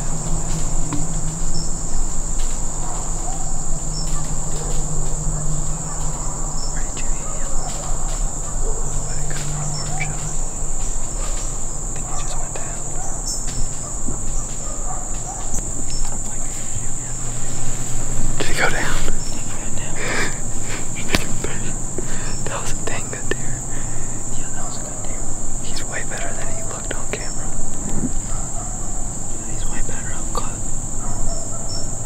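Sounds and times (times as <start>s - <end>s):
low hum: 0.0s - 12.8s
faint clicks and rustles: 0.0s - 23.4s
insects buzzing: 0.0s - 32.0s.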